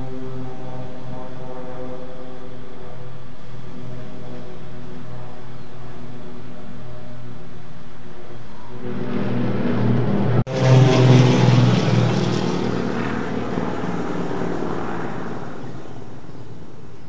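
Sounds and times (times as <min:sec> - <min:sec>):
propeller plane droning past: 0:00.0 - 0:17.0.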